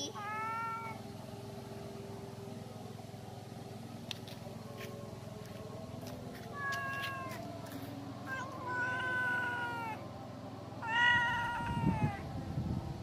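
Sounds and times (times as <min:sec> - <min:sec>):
cat meowing: 0:00.2 - 0:01.0, 0:06.5 - 0:07.4, 0:08.3 - 0:10.0, 0:10.8 - 0:12.2.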